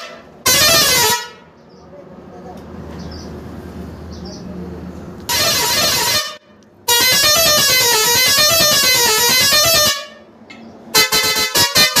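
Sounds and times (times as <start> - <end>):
musical pressure horn playing a tune: 0.0 - 1.4, 5.3 - 10.2, 11.0 - 12.0.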